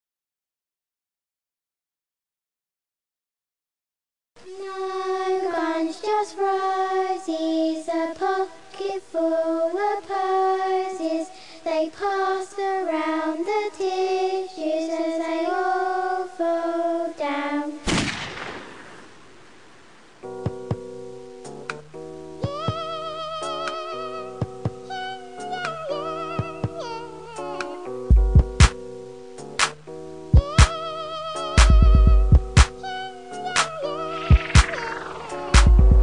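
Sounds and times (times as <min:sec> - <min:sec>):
person singing unaccompanied: 0:04.4 - 0:17.8, 0:22.4 - 0:27.9, 0:30.3 - 0:36.0
loud gunshot: 0:17.8 - 0:19.6.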